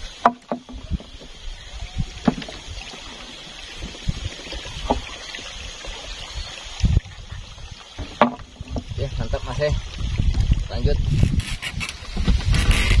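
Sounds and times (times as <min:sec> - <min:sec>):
knocks on wooden boat: 0:02.2 - 0:02.6, 0:08.0 - 0:08.8.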